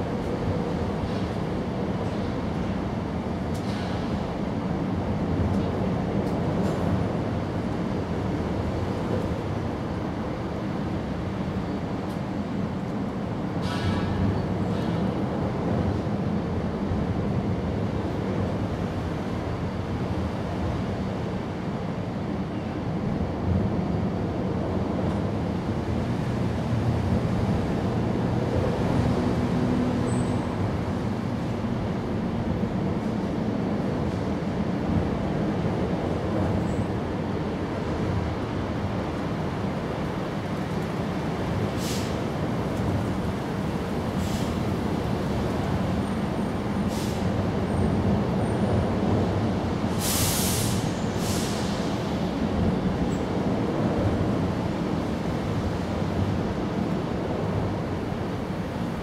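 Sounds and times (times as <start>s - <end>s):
brief high hiss: 41.8s - 42.2s, 50.0s - 52.0s.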